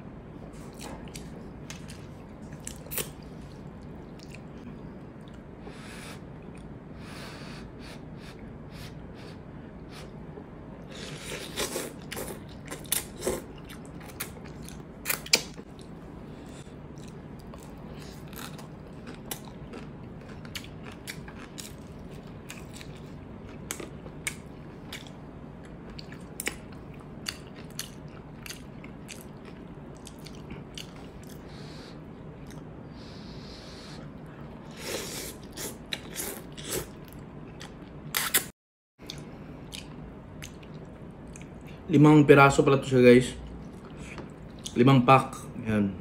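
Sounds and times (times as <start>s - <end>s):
wet chewing and crunching: 11.0s - 31.4s.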